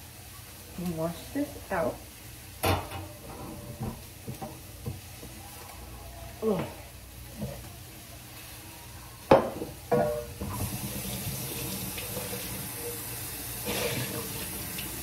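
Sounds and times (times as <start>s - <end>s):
faucet running into sink: 10.4s - 15.0s.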